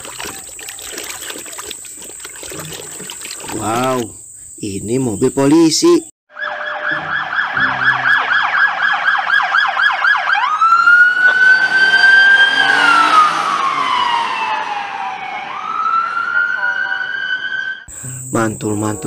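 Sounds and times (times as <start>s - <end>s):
police siren: 6.3s - 17.9s.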